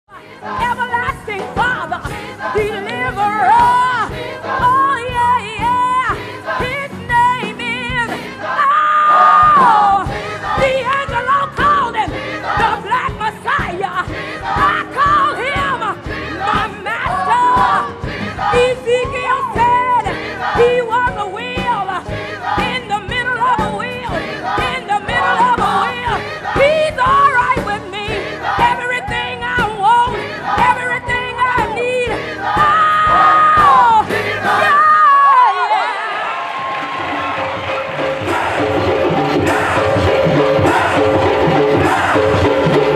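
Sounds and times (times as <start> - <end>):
gospel accompaniment: 0.1 - 42.9
steady percussive beat: 36.6 - 42.9.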